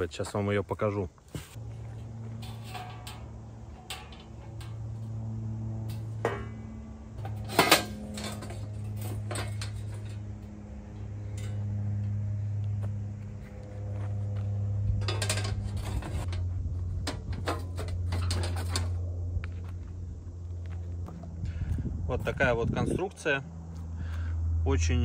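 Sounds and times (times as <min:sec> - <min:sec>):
steady low hum: 0:00.0 - 0:25.0
metal plates clanking and scraping: 0:01.4 - 0:12.6, 0:14.8 - 0:19.2.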